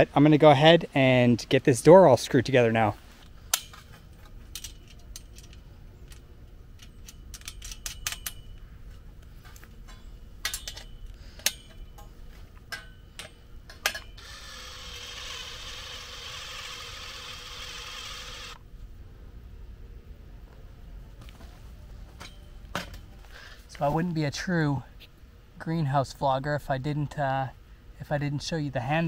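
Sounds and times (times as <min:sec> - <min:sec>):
steady hiss with faint hum: 0:00.0 - 0:29.0
clinks of small parts and tools: 0:04.5 - 0:06.2, 0:06.8 - 0:08.6, 0:09.4 - 0:14.2.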